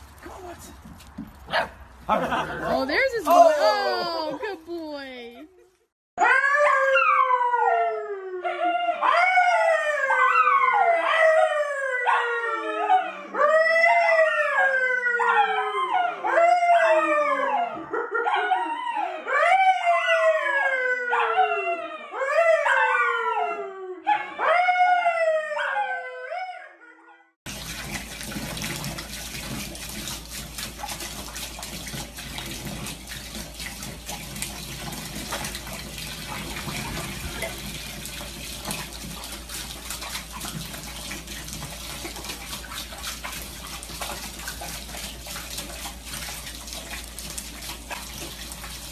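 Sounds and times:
man howling: 2.1s - 4.5s
dog howling: 6.2s - 27.0s
tap water running into bathtub: 27.5s - 48.9s.

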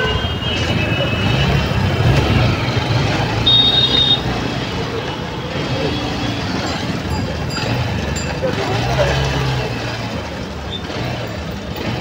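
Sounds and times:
city traffic road noise: 0.0s - 12.0s
motorbike engine: 0.0s - 12.0s
high-pitched horn beep: 3.4s - 4.3s.

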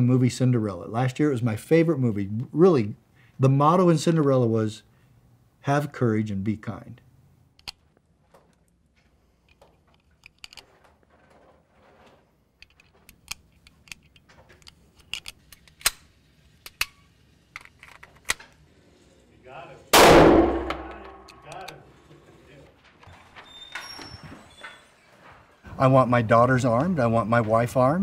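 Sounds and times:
cartridges clicking into magazine: 12.6s - 17.0s.

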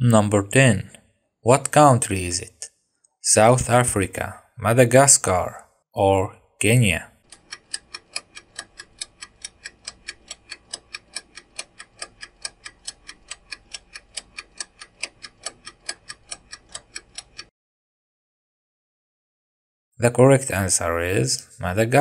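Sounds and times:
clock ticking: 6.8s - 17.5s.

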